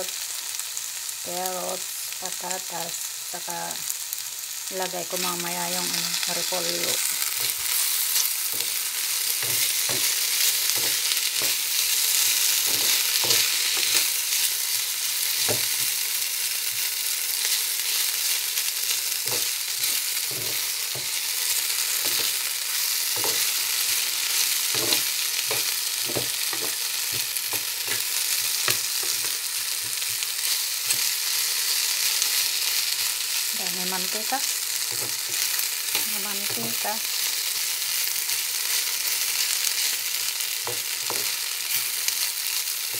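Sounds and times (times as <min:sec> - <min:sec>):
potatoes sizzling in hot oil: 0:00.0 - 0:42.9
metal spatula scraping a pan: 0:23.1 - 0:31.1.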